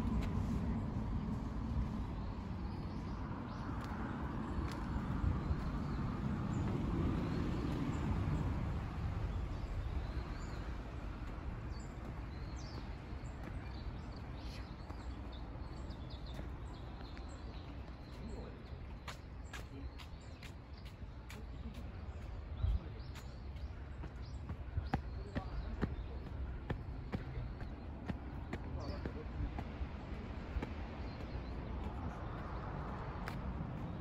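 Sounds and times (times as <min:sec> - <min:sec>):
steady low rumble: 0:00.0 - 0:34.0
small birds chirping: 0:01.8 - 0:34.0.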